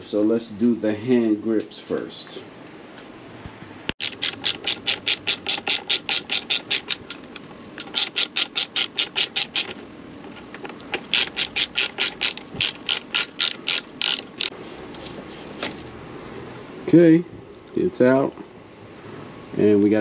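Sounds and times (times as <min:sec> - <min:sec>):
ratchet tool clicking rapidly: 0:04.0 - 0:09.8, 0:11.0 - 0:14.6.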